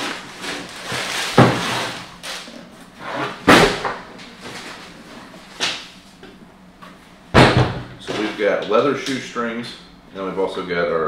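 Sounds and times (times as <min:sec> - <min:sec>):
tissue paper and box rustling: 0:00.0 - 0:02.4.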